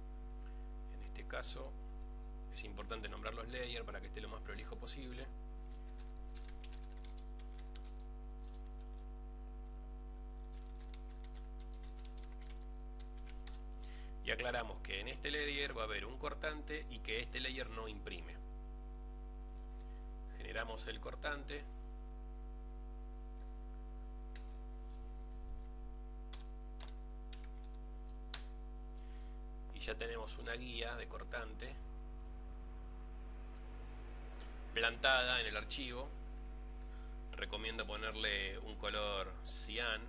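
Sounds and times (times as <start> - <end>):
steady low hum: 0.0 - 40.0
typing on computer keyboard: 5.7 - 9.0, 10.4 - 13.6, 26.3 - 28.5.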